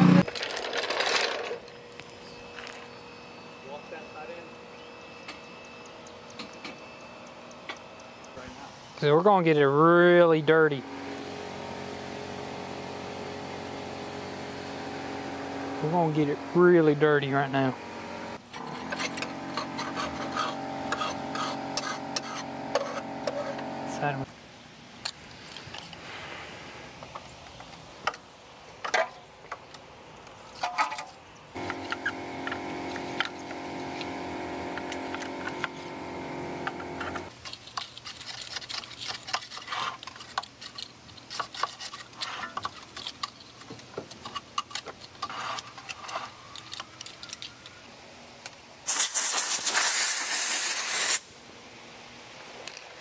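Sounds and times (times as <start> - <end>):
multi-tone hum: 0.0 - 24.3, 31.6 - 37.3
air hissing: 48.9 - 51.3.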